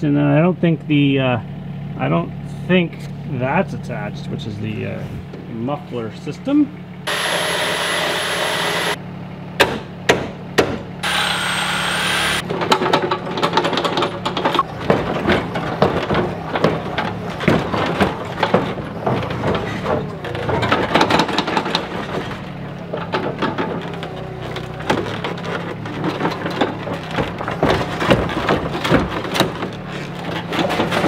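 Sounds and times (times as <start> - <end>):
engine hum: 0.0 - 31.0
metallic knocks and clanks: 12.4 - 31.0.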